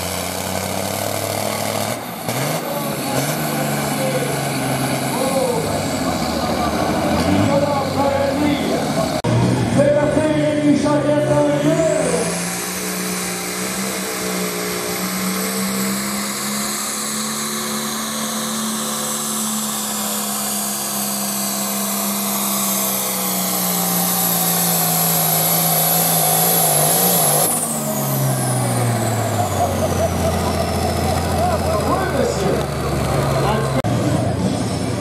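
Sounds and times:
tractor engine at full throttle: 0.0 - 35.0.

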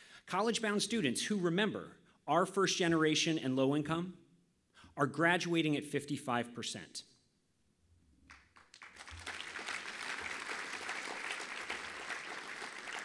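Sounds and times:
audience applauding: 8.3 - 13.0.

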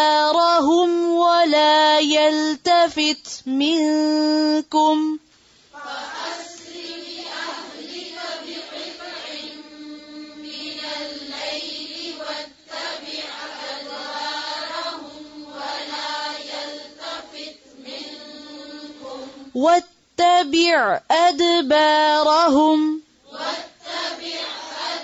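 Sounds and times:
steady hiss: 0.0 - 20.2, 23.0 - 25.0
melodic chanting recitation: 0.0 - 25.0.

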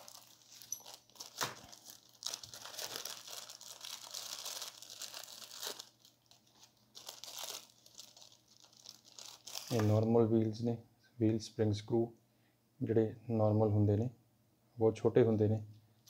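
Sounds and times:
plastic packaging crinkling: 0.0 - 10.1.

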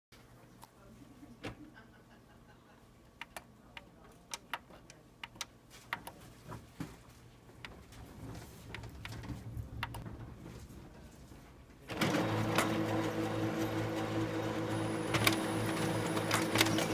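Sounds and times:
printer buttons clicking: 15.0 - 16.9.

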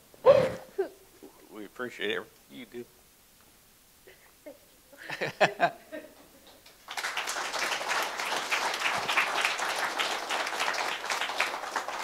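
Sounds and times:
crowd applauding: 6.4 - 12.0.

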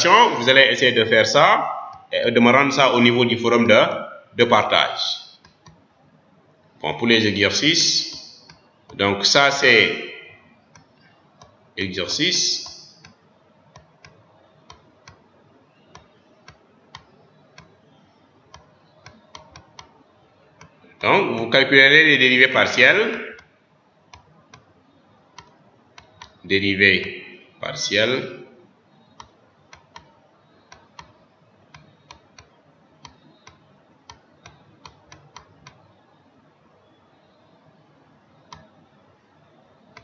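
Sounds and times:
faint sharp computer clicks: 5.2 - 5.9, 8.0 - 9.0, 10.2 - 11.6, 12.4 - 21.1, 23.1 - 26.5, 28.9 - 40.0.

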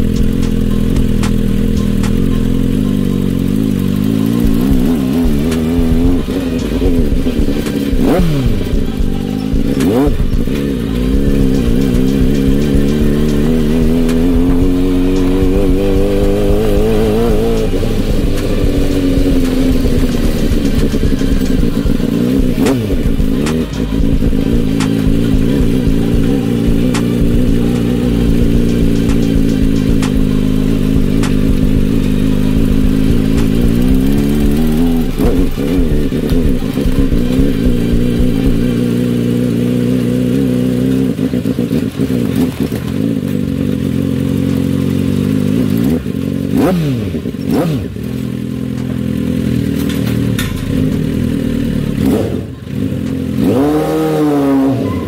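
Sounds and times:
go-kart engine revving: 0.0 - 55.0
knocks and rattles: 49.6 - 51.4.

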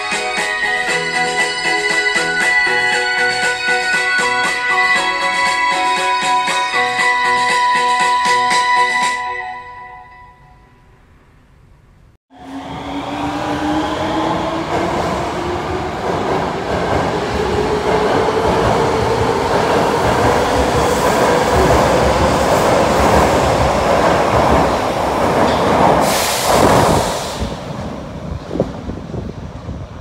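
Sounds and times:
subway train motor whine: 12.4 - 29.9
wheels rumbling on rails: 12.4 - 30.0.

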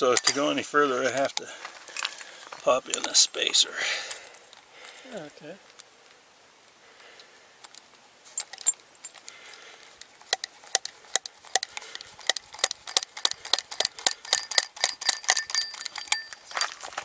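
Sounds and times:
metallic tool clicking: 10.3 - 16.4.

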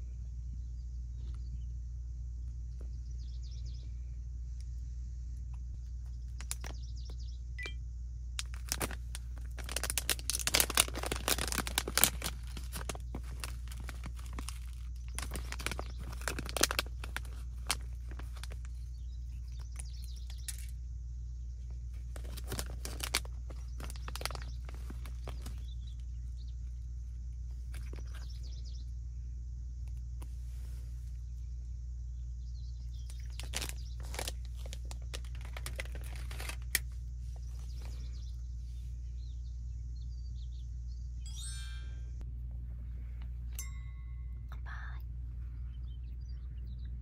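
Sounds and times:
low hum: 0.0 - 47.0
plastic packaging crinkling: 6.2 - 6.8, 8.4 - 20.8, 22.0 - 26.0, 27.6 - 28.4, 33.0 - 38.1.

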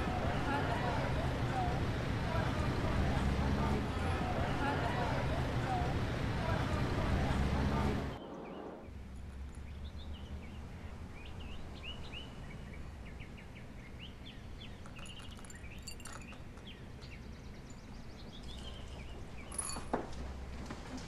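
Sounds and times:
steady low hum: 7.8 - 8.9
small birds chirping: 9.6 - 19.8.

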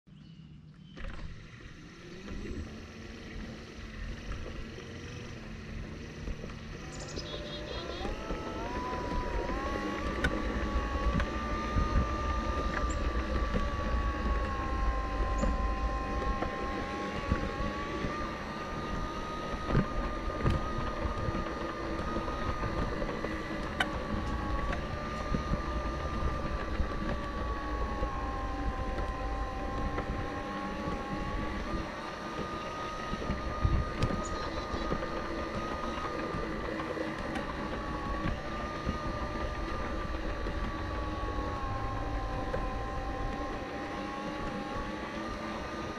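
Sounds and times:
wheels rumbling on track: 0.4 - 45.9
model train motor whining: 1.0 - 45.9.

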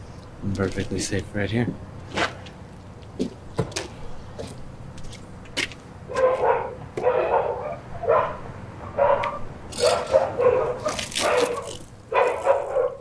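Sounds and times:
dog barking: 6.1 - 13.0.

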